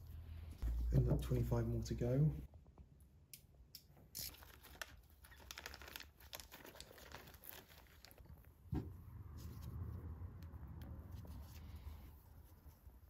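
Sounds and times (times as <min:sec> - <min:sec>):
small metal parts clicking and crinkling: 0:04.2 - 0:08.4.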